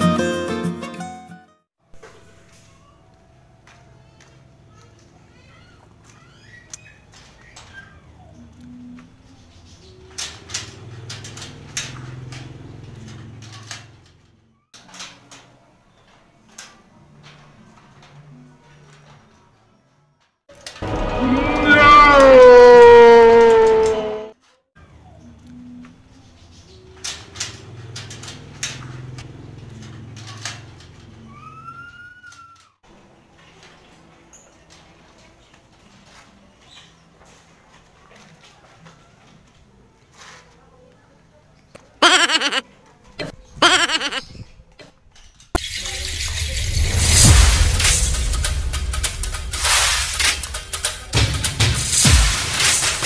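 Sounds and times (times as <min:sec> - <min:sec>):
low hum: 0:20.8 - 0:22.6, 0:45.6 - 0:52.5
drawn-out rising call: 0:20.8 - 0:24.3.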